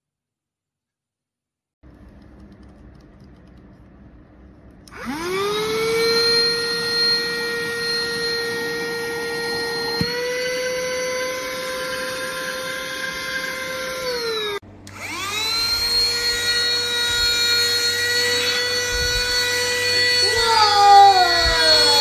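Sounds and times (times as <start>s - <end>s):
vacuum cleaner click: 4.9s - 15.3s
vacuum cleaner motor whining: 4.9s - 22.0s.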